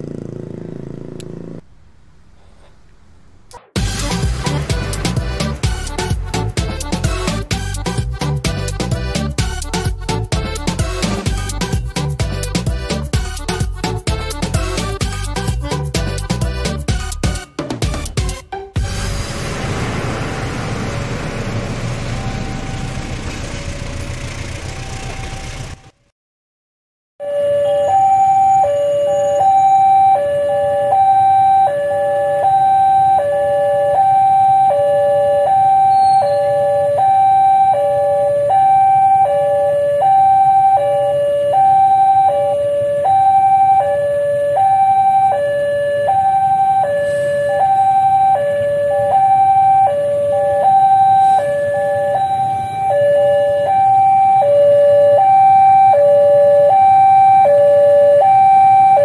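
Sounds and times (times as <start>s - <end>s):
level crossing two-tone alarm: 27.2s - 59.0s.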